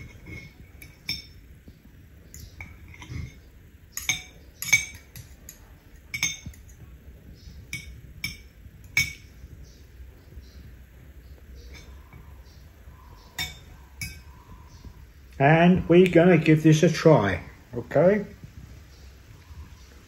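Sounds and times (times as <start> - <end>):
cutlery clinking on a plate: 0.0 - 1.5, 2.2 - 6.8, 7.4 - 9.5, 11.6 - 12.4, 13.2 - 14.6.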